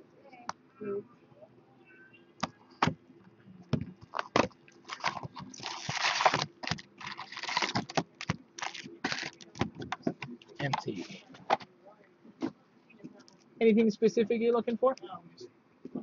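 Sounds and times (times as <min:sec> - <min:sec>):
crackling plastic wrapping rustles: 0:04.1 - 0:09.8.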